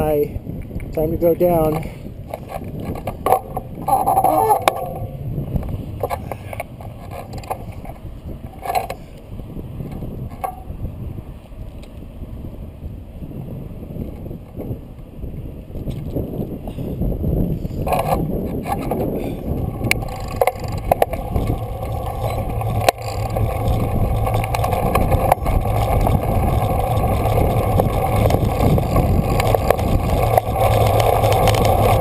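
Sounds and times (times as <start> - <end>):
wind rushing over microphone: 0.0 - 32.0
bike clicks and rattles: 1.6 - 10.8, 15.8 - 32.0
brief high tone: 21.3 - 22.8.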